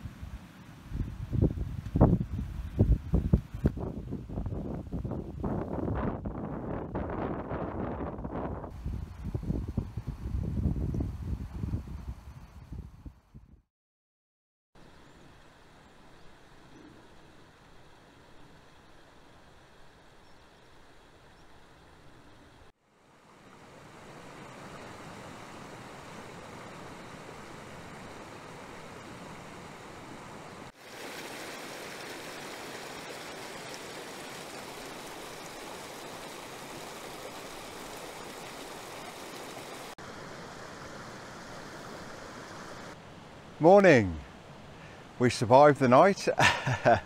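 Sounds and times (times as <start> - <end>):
water rushing over rocks: 23.4 - 43.0.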